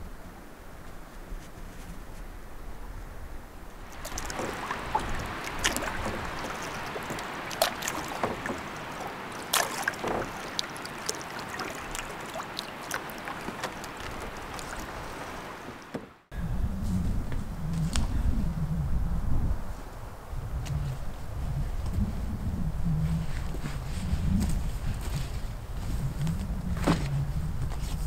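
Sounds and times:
water dripping: 3.8s - 16.0s
water lapping around canoe: 3.8s - 16.3s.

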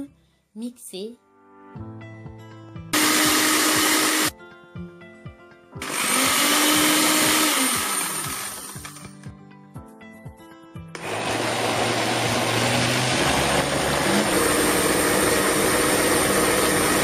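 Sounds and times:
blender motor running: 3.0s - 4.3s, 5.8s - 9.0s, 11.0s - 17.0s
background music with a beat: 7.2s - 11.0s.

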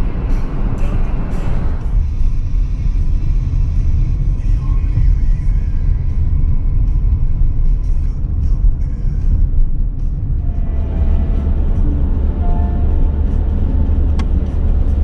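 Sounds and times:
background music: 0.0s - 15.0s
car road rumble: 0.0s - 15.0s.

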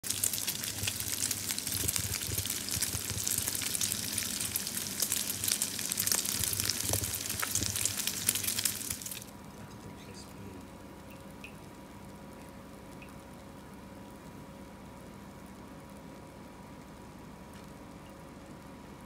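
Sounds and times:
pork fat sizzling in a frying pan: 0.0s - 9.6s
small crackling pops: 0.0s - 9.8s, 10.6s - 14.4s, 15.2s - 18.8s.

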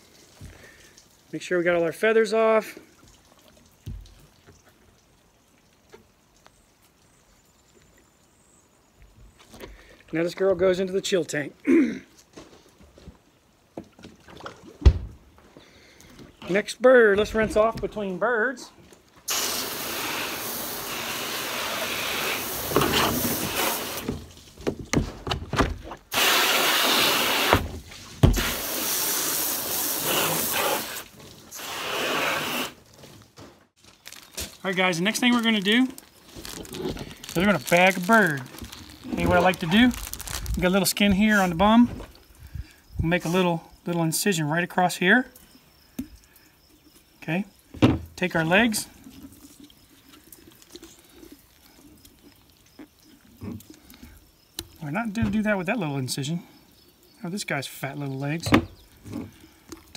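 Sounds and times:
hose nozzle spraying water: 19.2s - 24.3s, 26.1s - 32.9s.

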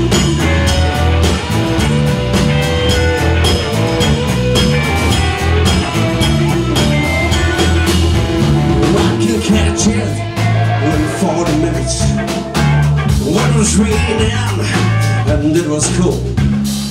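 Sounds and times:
electric bass: 0.0s - 16.9s
electric guitar: 0.0s - 16.9s
steady drum beat: 0.0s - 16.9s.

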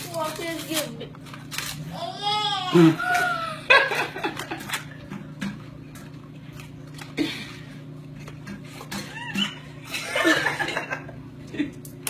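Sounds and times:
wrapping paper crinkling: 0.0s - 2.0s.

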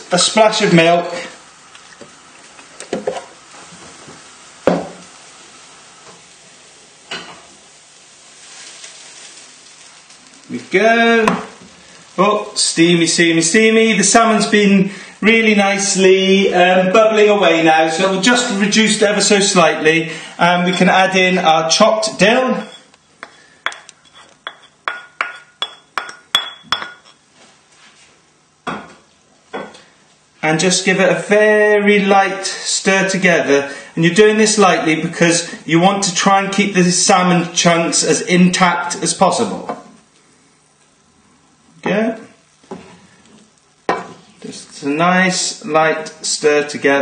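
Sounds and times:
pan sizzling and bubbling: 0.0s - 27.3s.

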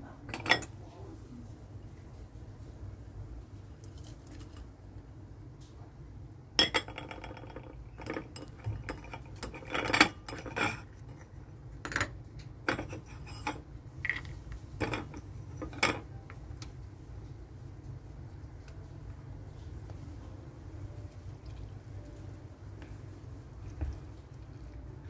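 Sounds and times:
steady low hum: 0.0s - 25.0s
utensils and dishes clinking: 0.2s - 0.8s, 6.6s - 16.4s.

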